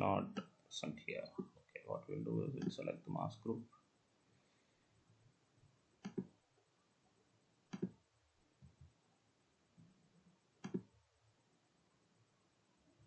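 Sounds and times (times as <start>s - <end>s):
computer mouse clicks: 6.0s - 6.3s, 7.7s - 8.0s, 10.6s - 10.9s.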